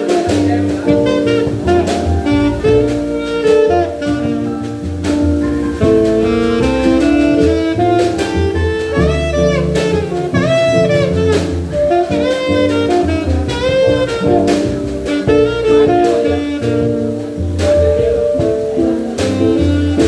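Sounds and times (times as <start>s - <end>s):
live band with drums and keyboard: 0.0s - 20.0s
saxophone playing jazz melody: 0.0s - 20.0s.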